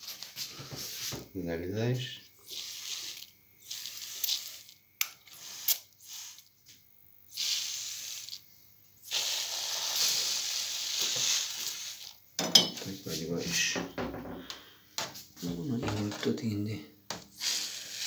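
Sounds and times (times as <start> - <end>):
water spraying from watering wand: 2.4 - 6.4, 7.3 - 8.4, 9.0 - 12.1.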